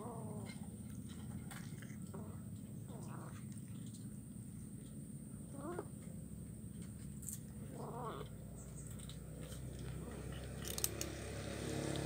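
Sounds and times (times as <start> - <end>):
kitten chewing bones: 8.9 - 11.3.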